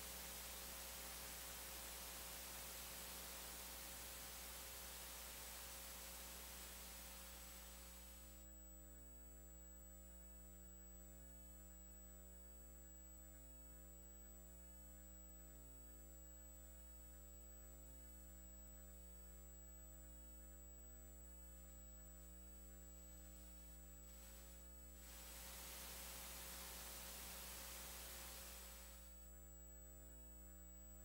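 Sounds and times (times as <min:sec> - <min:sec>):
faint hiss: 0:00.0 - 0:08.5, 0:21.6 - 0:29.4
low electrical hum: 0:00.0 - 0:31.0.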